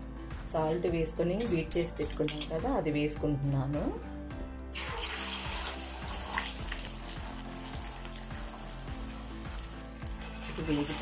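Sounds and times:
eggs sizzling in hot oil: 4.7 - 11.0.

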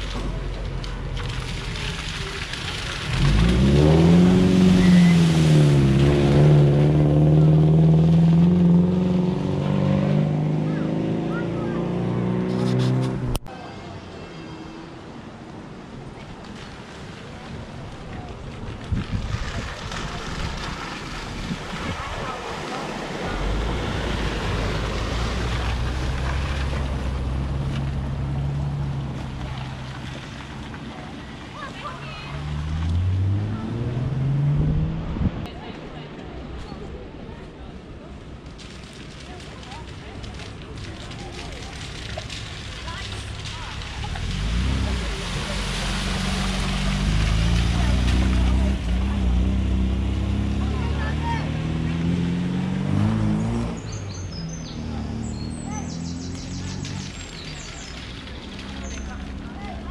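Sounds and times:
water spraying from tyres: 0.0 - 11.8, 15.0 - 34.6, 38.1 - 59.9
car engine revving: 1.1 - 13.5, 31.8 - 35.5, 41.7 - 59.9.

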